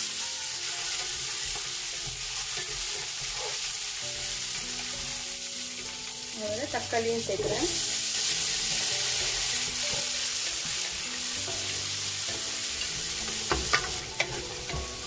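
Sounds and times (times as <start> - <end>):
tomatoes sizzling in oil: 0.0 - 15.0
spatula scraping pan: 0.7 - 5.0, 7.4 - 15.0.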